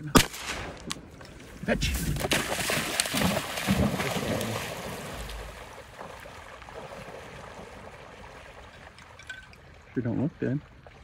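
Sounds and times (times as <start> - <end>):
dog splashing through water: 2.0 - 9.0.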